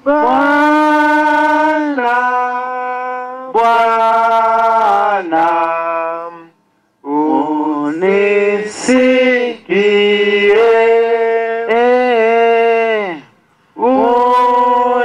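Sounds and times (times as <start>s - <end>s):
man singing long notes: 0.0s - 15.0s.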